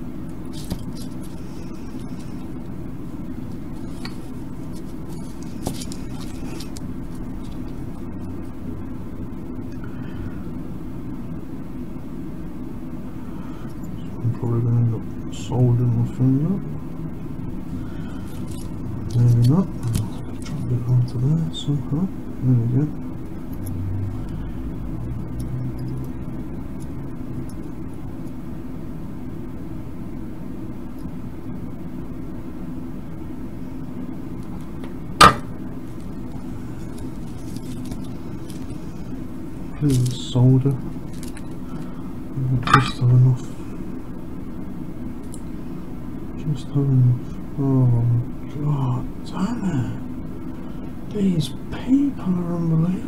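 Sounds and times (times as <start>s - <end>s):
low background hum: 0.0s - 53.0s
small clicks of handling components: 3.9s - 7.9s, 18.2s - 20.6s, 41.1s - 41.9s.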